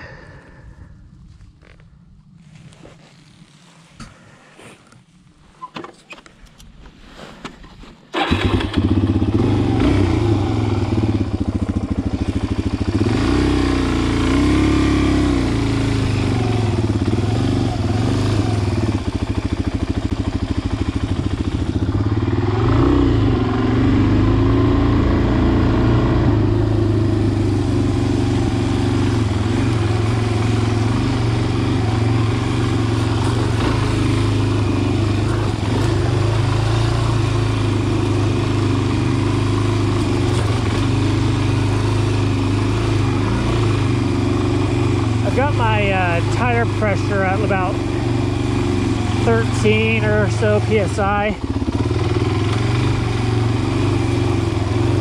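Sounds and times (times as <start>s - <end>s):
riding gloves clicking and rustling: 1.2s - 8.2s
dirt bike engine: 7.2s - 55.0s.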